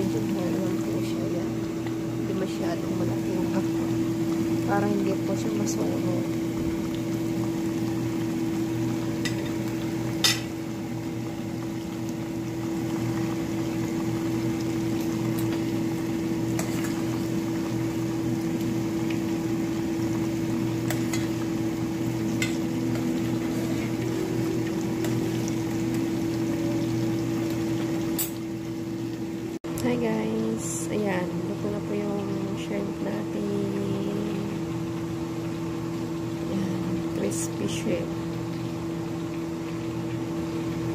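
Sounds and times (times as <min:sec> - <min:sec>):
shrimp sizzling in hot oil: 0:00.0 - 0:29.6
steady low hum: 0:00.0 - 0:39.4.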